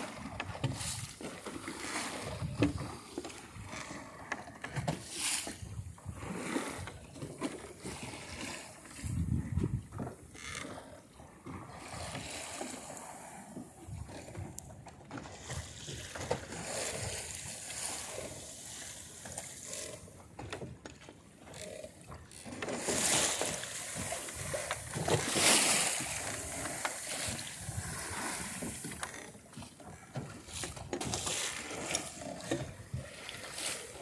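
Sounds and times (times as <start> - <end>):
water splashing along boat hull: 0.0 - 34.0.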